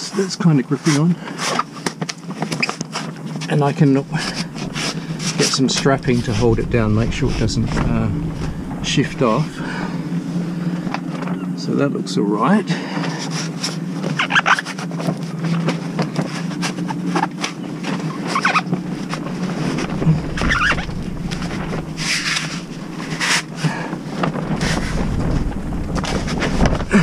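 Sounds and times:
plastic tarpaulin rustling: 0.9 - 10.9, 16.1 - 27.0
steady low hum: 3.5 - 11.8, 17.7 - 27.0.

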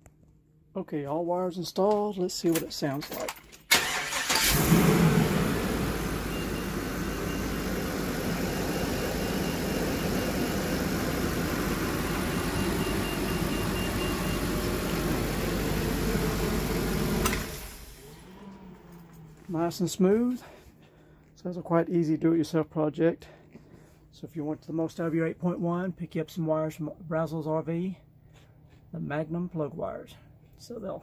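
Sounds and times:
big engine idling: 4.8 - 19.4.

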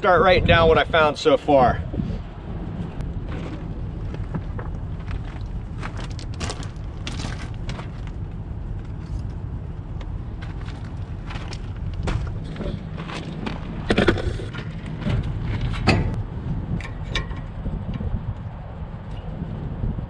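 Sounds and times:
steady low rumble: 0.0 - 20.0
footsteps on roof gravel: 3.1 - 9.3, 10.3 - 13.9.

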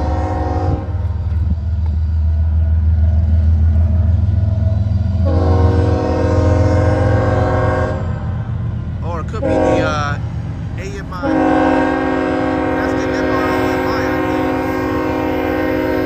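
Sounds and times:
locomotive air horn blasts: 0.0 - 1.2, 5.2 - 8.2, 9.4 - 10.2, 11.2 - 16.0
locomotive low rumble: 0.0 - 16.0.

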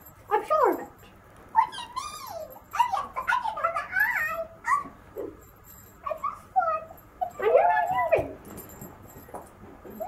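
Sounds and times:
high-pitched whimpering squeaks: 7.2 - 8.5.

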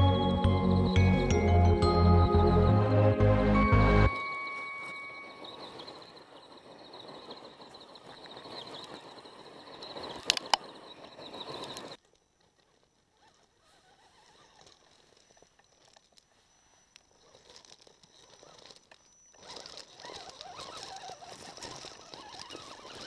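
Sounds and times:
tyres crunching on gravel: 3.8 - 23.0
sharp clicks: 9.8 - 12.2.

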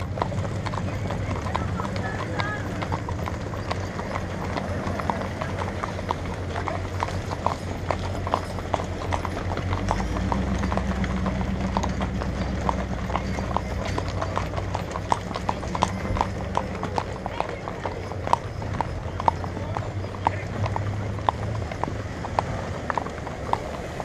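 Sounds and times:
hooves clip-clopping on asphalt: 0.0 - 24.0.

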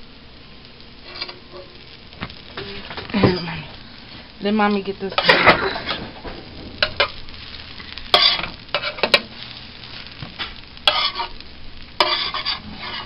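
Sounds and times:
batter sizzling on a griddle: 0.0 - 13.0
spatula scraping a griddle: 1.0 - 3.5, 5.2 - 11.4, 12.0 - 13.0.

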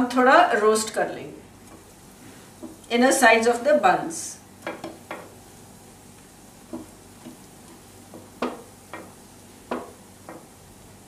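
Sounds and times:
faint sizzle of hot oil: 0.0 - 11.0
buns tapping on pan: 2.6 - 2.9, 4.5 - 5.5, 6.1 - 11.0.

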